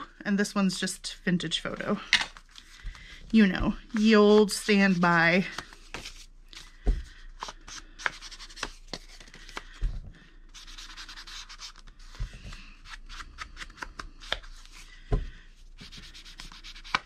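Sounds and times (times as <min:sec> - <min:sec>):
scratchy rubbing on paper: 0:15.8 - 0:17.0.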